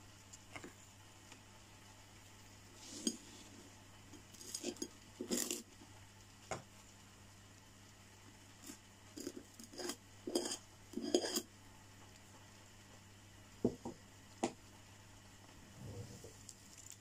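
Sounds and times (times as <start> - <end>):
knife scraping spread on bread: 4.4 - 5.6, 8.6 - 11.5.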